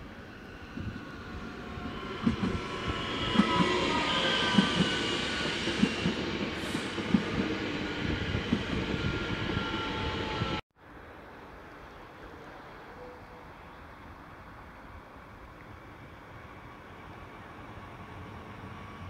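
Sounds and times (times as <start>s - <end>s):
train rolling rush: 0.0s - 10.6s, 15.7s - 19.0s.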